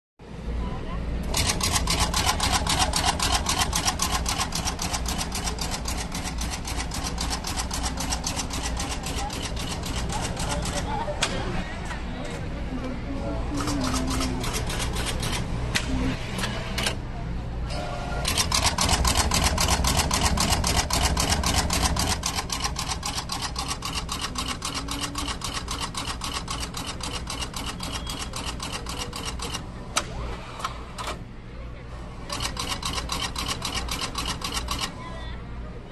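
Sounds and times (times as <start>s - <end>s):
machine clattering rapidly: 1.3s - 10.9s, 18.3s - 29.6s.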